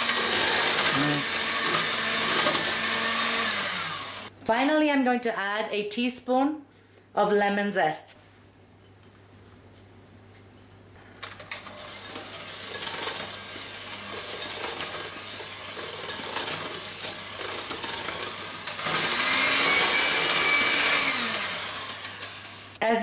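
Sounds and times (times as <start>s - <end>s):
electric hand mixer running: 0.0s - 4.3s, 11.6s - 22.8s.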